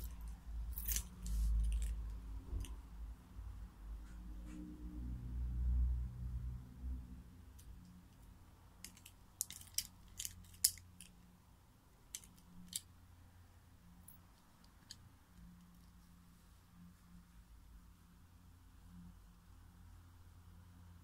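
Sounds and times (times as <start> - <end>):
necklace chain links clinking: 0.0 - 2.8, 8.8 - 11.2, 12.1 - 12.9.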